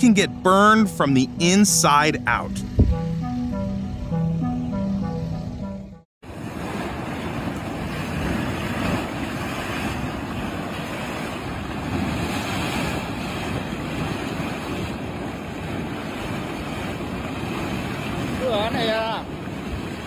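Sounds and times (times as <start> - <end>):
wind buffeting microphone: 2.4 - 3.2, 6.2 - 20.0.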